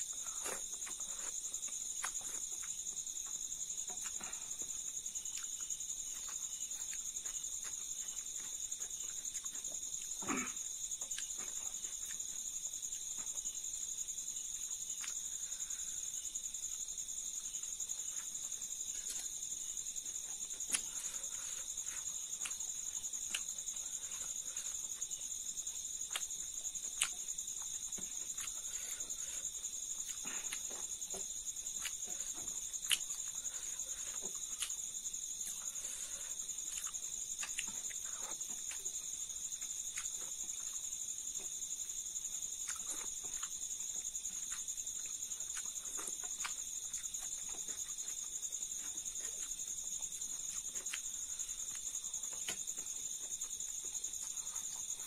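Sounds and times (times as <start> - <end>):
soft eating clicks and smacks: 0.0 - 10.2, 11.0 - 15.4, 16.5 - 55.0
high-pitched insect chorus: 0.0 - 55.0.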